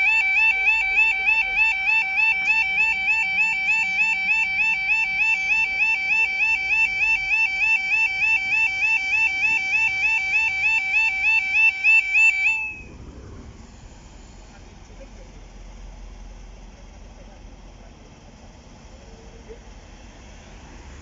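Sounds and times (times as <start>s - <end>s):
level crossing warning alarm: 0.0s - 13.0s.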